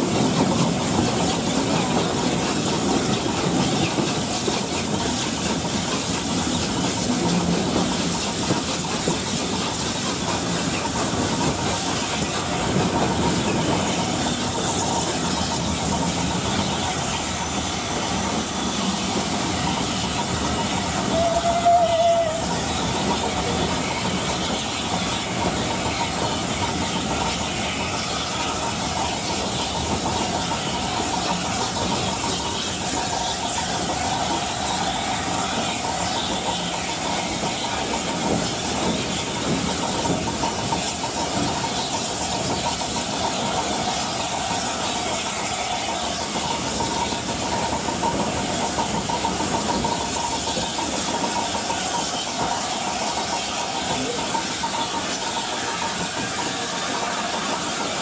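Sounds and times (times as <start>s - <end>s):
steam locomotive hissing: 0.0s - 58.0s
train coaches running past: 0.0s - 58.0s
short train whistle: 21.1s - 22.6s.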